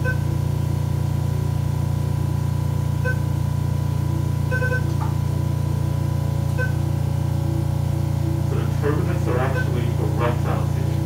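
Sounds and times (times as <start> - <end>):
low hum: 0.0 - 11.0
longer electronic beep: 3.0 - 3.4, 4.2 - 5.0, 6.5 - 8.4, 9.2 - 10.3
short electronic beeps: 3.0 - 3.4, 4.4 - 5.1, 6.5 - 7.0, 9.3 - 10.0.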